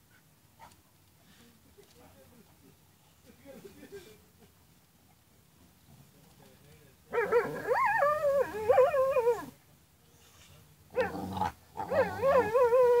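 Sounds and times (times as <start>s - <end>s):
dog growling: 11.0s - 12.6s.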